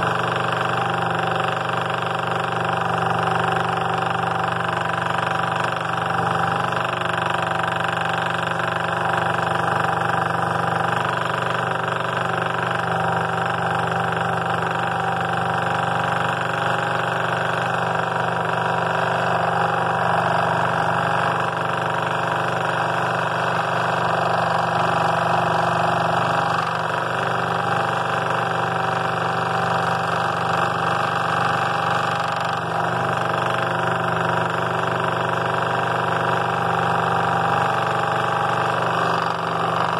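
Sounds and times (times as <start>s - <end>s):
scroll saw motor hum: 0.0s - 39.9s
saw blade rasping through wood: 14.7s - 39.9s.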